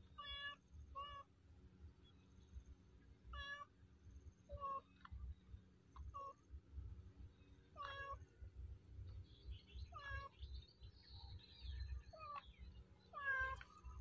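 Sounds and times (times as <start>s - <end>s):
faint short animal calls: 3.3s - 3.7s, 4.5s - 5.2s, 6.0s - 6.4s, 7.7s - 8.3s, 9.9s - 10.4s, 12.1s - 14.0s.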